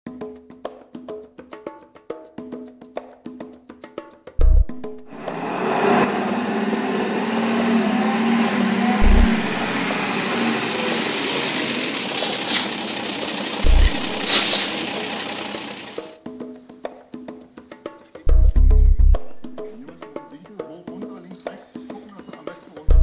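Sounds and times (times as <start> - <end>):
truck diesel engine running: 5.1 - 16.2
deep thuds: 9.0 - 9.7, 13.6 - 14.3
loud hiss: 9.2 - 16.1.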